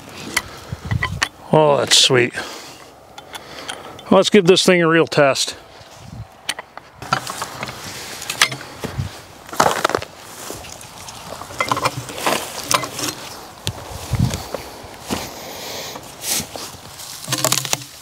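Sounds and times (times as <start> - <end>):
steel tool knocking and clinking: 0.4 - 1.4, 8.3 - 8.6, 11.6 - 12.0.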